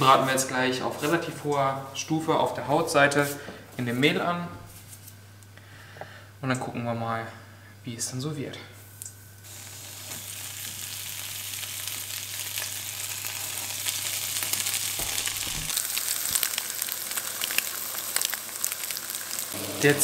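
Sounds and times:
fish sizzling in butter: 9.4s - 20.0s.

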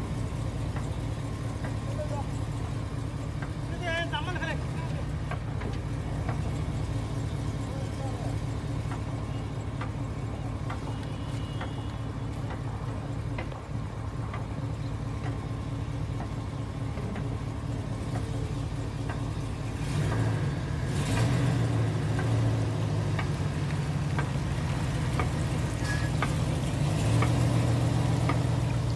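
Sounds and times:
vehicle engine running: 0.0s - 28.9s.

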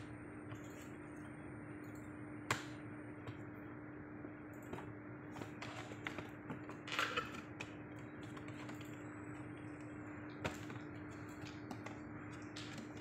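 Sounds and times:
steady hum: 0.0s - 13.0s
cardboard pages clicking and tapping: 10.4s - 13.0s.

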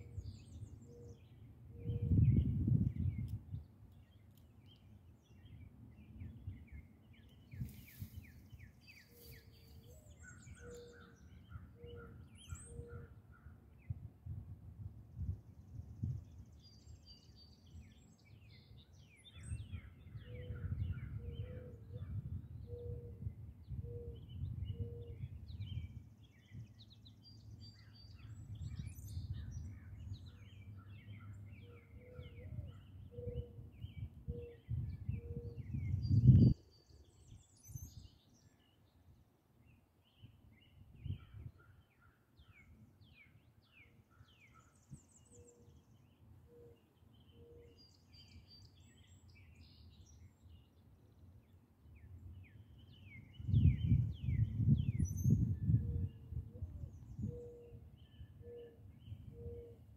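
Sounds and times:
wind rumbling on microphone: 0.0s - 3.8s, 13.8s - 17.5s, 18.8s - 31.6s, 32.2s - 38.2s, 40.5s - 41.6s, 52.9s - 59.6s
songbirds chirping and singing: 0.0s - 14.0s, 16.0s - 59.9s.

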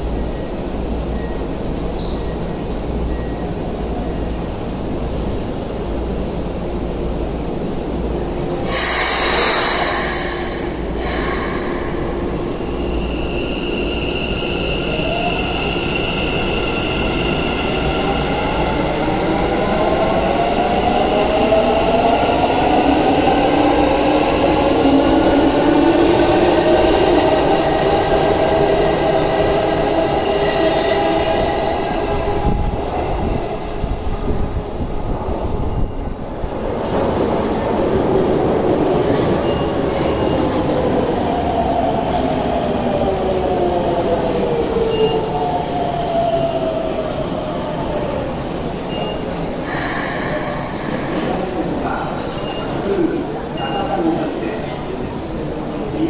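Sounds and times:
compressed air hiss: 8.7s - 12.4s.

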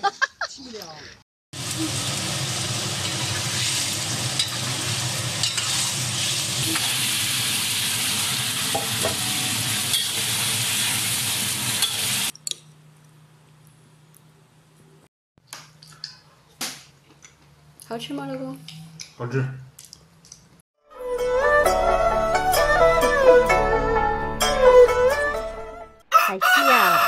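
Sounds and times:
mushrooms sizzling in a wok: 1.6s - 12.3s.

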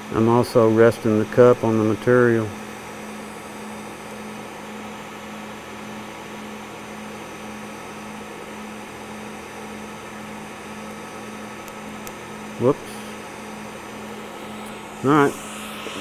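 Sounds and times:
low hum: 12.4s - 16.0s
welding arc hissing: 12.8s - 16.0s.

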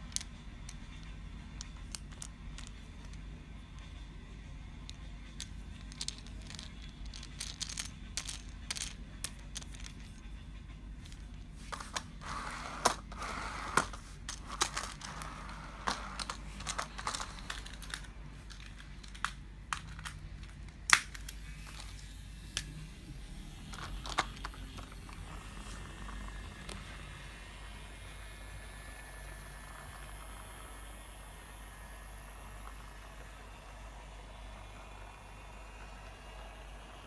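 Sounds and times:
toy train clicks and taps: 0.0s - 4.1s, 4.7s - 10.2s.

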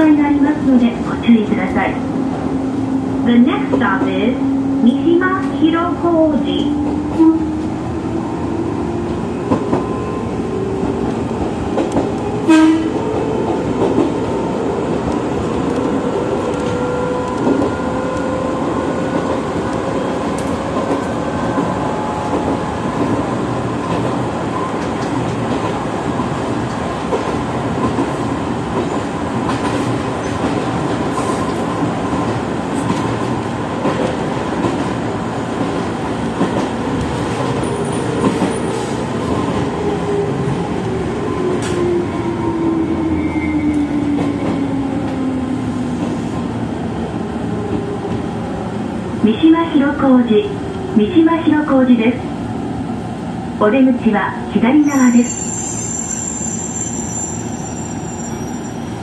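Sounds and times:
train rolling noise: 0.0s - 59.0s.

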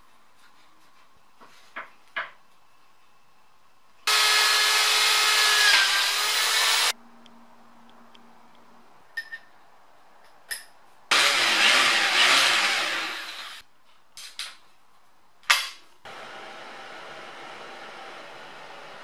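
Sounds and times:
electric drill cutting metal: 4.1s - 6.9s, 11.1s - 13.6s.

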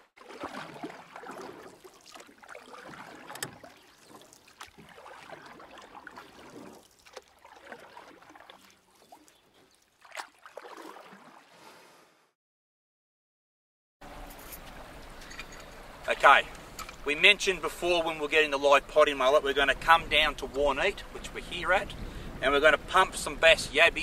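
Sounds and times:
water washing on shore: 0.0s - 11.7s
wind: 0.0s - 12.4s, 14.0s - 24.0s.

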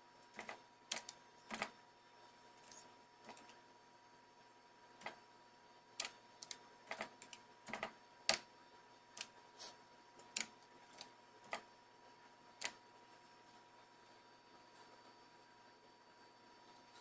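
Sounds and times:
computer keyboard keystrokes: 0.4s - 1.7s, 6.0s - 8.5s, 10.2s - 11.6s.

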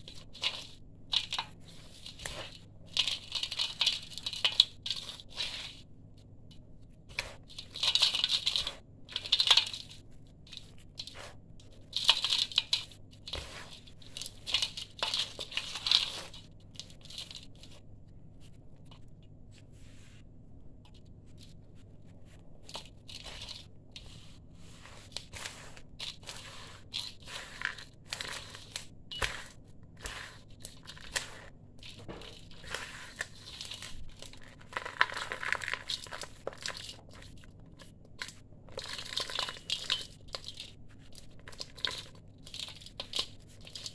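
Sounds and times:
hand scooping through gritty mix: 7.1s - 17.8s, 22.2s - 37.3s.

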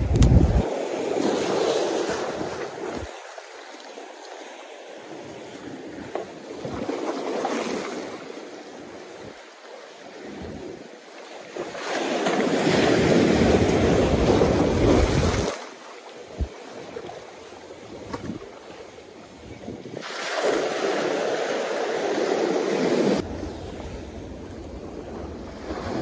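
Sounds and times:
wind noise on microphone: 0.0s - 1.6s, 12.6s - 15.5s, 17.9s - 18.5s, 19.4s - 20.1s
surf washing against concrete: 0.0s - 26.0s.

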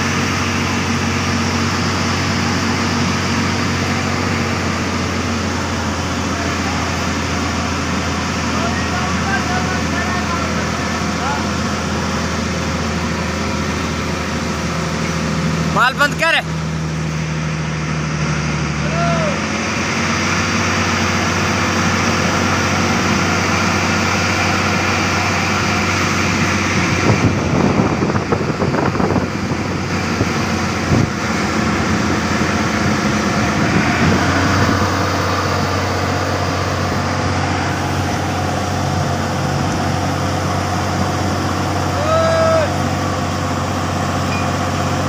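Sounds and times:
diesel engine running: 0.0s - 45.0s.

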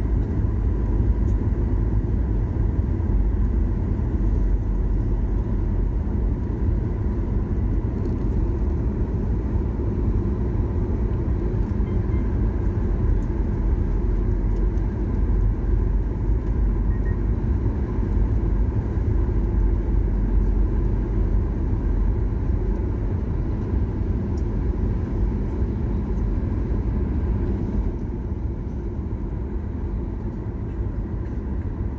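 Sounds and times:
jet engines rumbling in cabin: 0.0s - 31.9s.

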